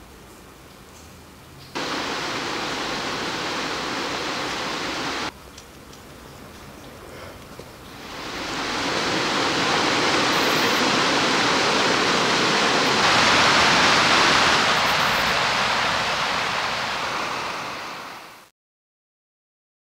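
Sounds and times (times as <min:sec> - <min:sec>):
water rushing: 0:01.8 - 0:05.3, 0:07.8 - 0:18.5.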